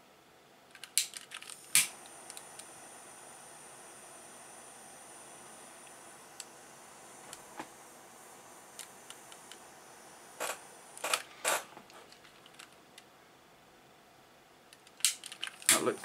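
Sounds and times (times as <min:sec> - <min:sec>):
blowtorch flame hissing: 0:01.0 - 0:12.2, 0:15.1 - 0:16.0.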